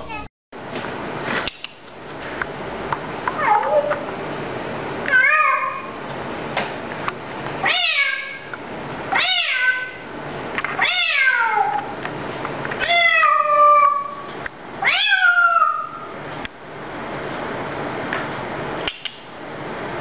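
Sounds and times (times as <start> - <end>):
parrot mimicking cat meows: 3.3 - 4.1, 5.1 - 6.0, 7.6 - 8.5, 9.1 - 10.0, 10.8 - 12.0, 12.8 - 16.1.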